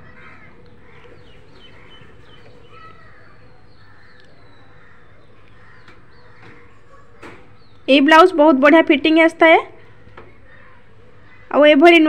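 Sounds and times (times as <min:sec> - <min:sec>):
bird chirps: 0:00.4 - 0:07.9.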